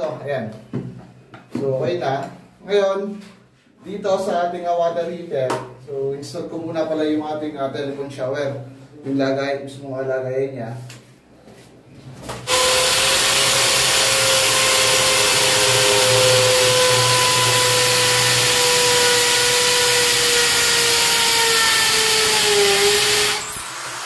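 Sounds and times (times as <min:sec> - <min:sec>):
electric drill boring into tile: 0:12.5 - 0:24.0.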